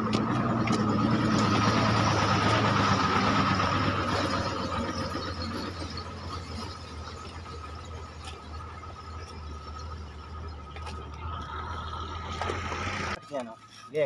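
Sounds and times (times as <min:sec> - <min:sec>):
engine running with high whine: 0:00.0 - 0:14.0.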